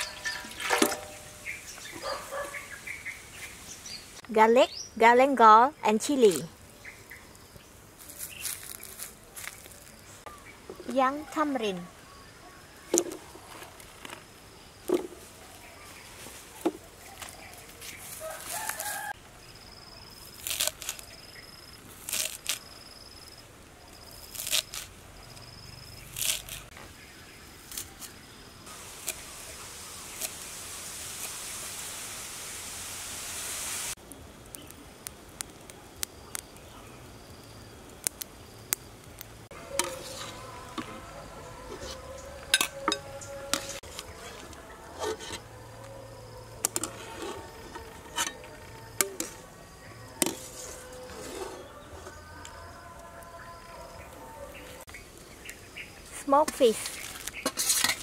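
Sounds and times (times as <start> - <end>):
hiss: 28.7 - 34.0.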